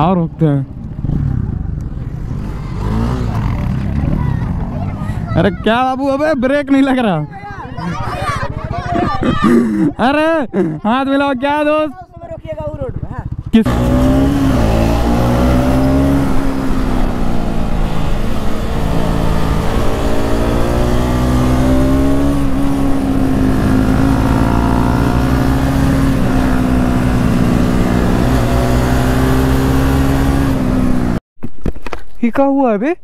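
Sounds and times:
road and wind noise: 0.0s - 32.2s
motorcycle engine at high revs: 1.0s - 4.6s, 12.4s - 31.2s.

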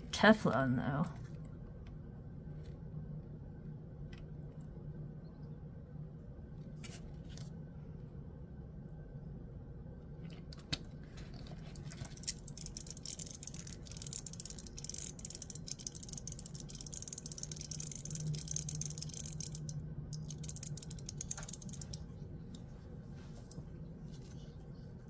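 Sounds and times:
detent balls clicking in fast ratchet: 11.8s - 22.0s.

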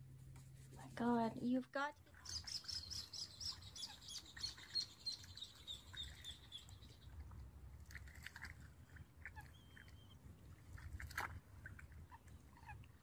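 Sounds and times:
low outdoor rumble: 0.0s - 13.0s
high faint chirps: 2.2s - 7.2s.

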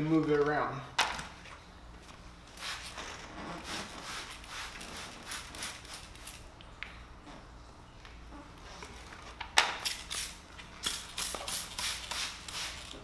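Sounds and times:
spray bottle hissing sprays: 9.8s - 13.0s.

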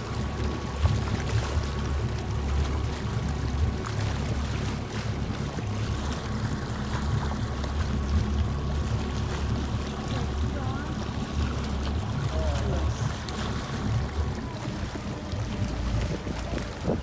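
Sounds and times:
motorboat engine running: 0.0s - 17.0s
water rushing and splashing: 0.0s - 17.0s.

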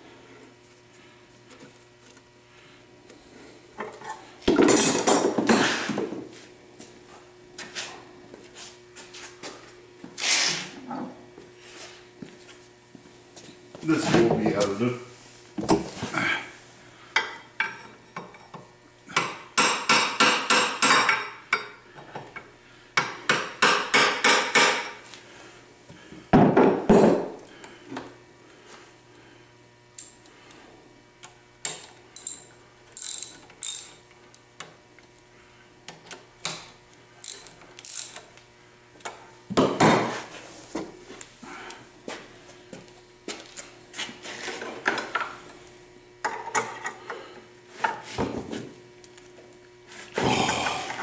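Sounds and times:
ratchet wrench clicking: 32.2s - 32.4s, 33.0s - 34.0s, 37.2s - 38.2s.

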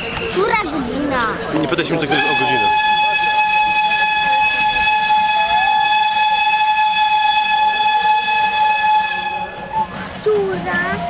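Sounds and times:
steam locomotive whistle: 2.1s - 10.2s.

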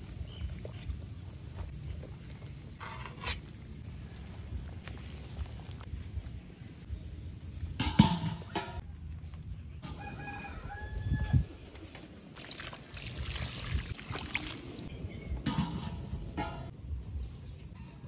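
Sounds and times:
rooster crowing: 9.8s - 11.5s.

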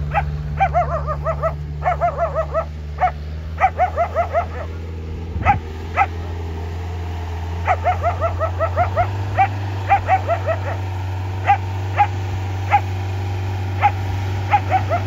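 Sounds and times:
vehicle engine drone: 0.0s - 15.0s
dog barking: 0.1s - 4.8s, 5.4s - 6.2s, 7.6s - 12.9s, 13.8s - 15.0s.

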